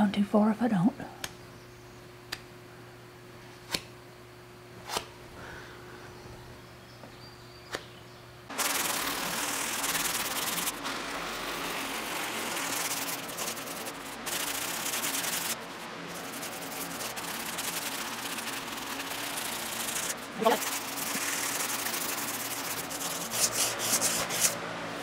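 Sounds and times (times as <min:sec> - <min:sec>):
faint hum: 0:00.0 - 0:25.0
sandpaper scraping filler: 0:08.5 - 0:24.6.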